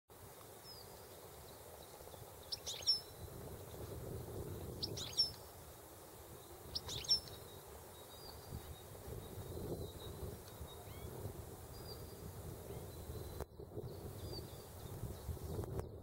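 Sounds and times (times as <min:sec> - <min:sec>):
goldfinch twittering calls: 0:02.4 - 0:03.3, 0:04.2 - 0:05.5, 0:06.4 - 0:11.1.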